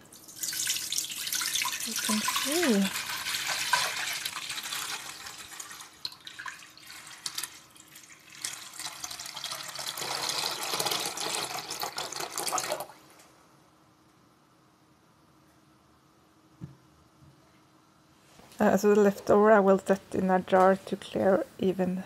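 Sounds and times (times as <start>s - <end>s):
liquid pouring between metal pots: 0.2s - 13.0s.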